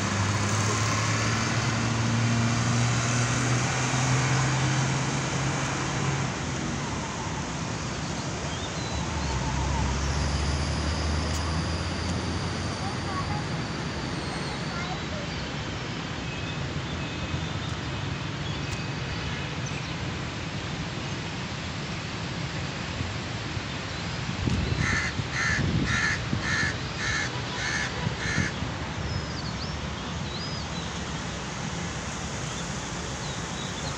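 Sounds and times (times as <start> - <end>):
wind gusts on microphone: 24.3 - 26.7.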